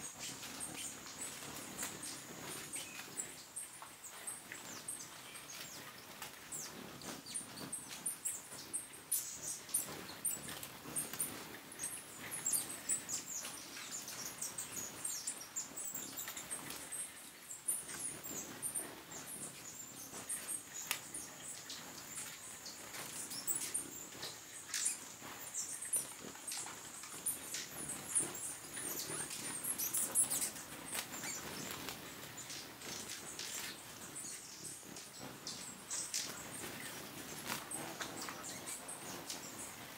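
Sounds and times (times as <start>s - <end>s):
hummingbirds chipping and twittering: 0.0s - 39.9s.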